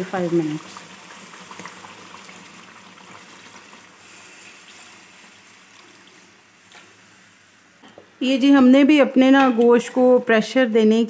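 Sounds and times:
water pouring into a pot: 0:00.0 - 0:06.6.

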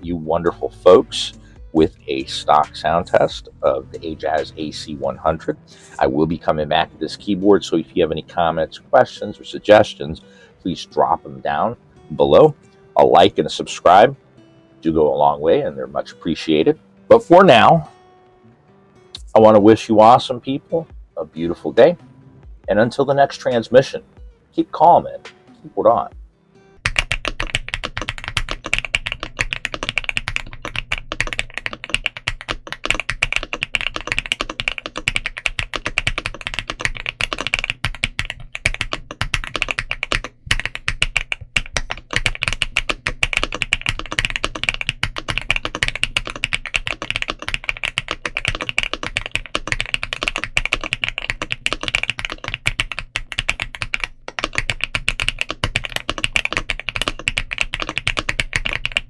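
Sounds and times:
fast typing on mechanical keyboard: 0:26.9 - 0:59.0.

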